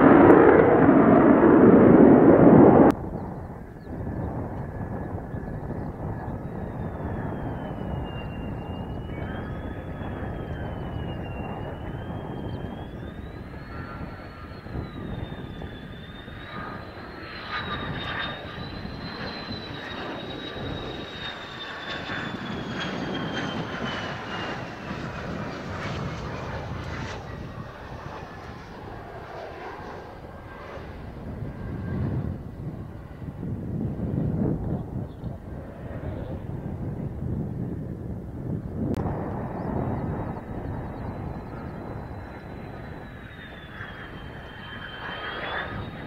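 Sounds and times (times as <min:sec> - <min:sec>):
jet engine whine: 0:00.0 - 0:46.0
low rush of jet noise: 0:00.0 - 0:46.0.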